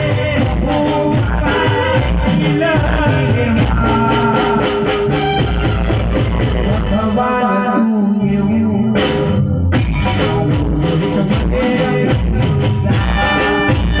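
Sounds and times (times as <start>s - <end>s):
man singing over a pa: 0.0s - 5.0s, 6.4s - 14.0s
dhol drumming: 0.0s - 7.0s, 9.8s - 14.0s
accompanying instruments: 0.0s - 14.0s.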